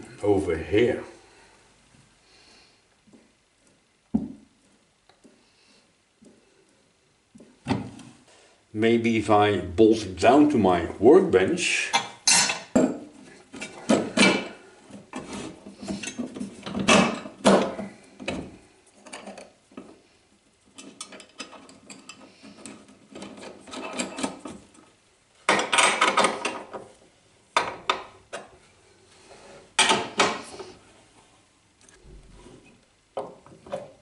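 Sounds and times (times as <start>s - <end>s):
metal tools clinking and scraping: 20.7s - 24.7s.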